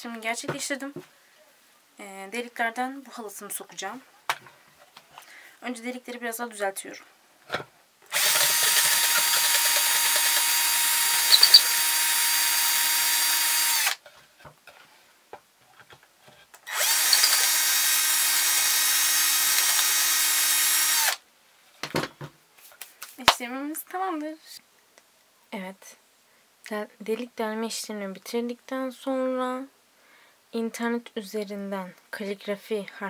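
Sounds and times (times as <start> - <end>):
electric drill running: 8.1 - 14.0, 16.7 - 21.2.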